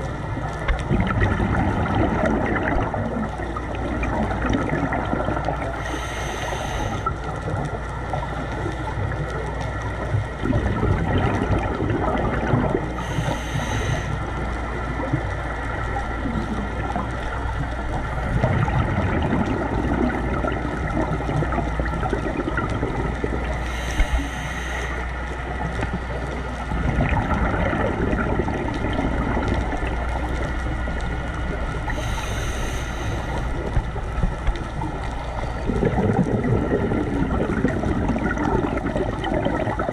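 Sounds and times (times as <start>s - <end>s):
gurgling exhaled bubbles: 0.0s - 39.9s
regulator inhalation hiss: 5.7s - 7.3s, 12.9s - 14.4s, 23.6s - 25.3s, 31.9s - 33.8s
steady low drone: 27.8s - 37.1s.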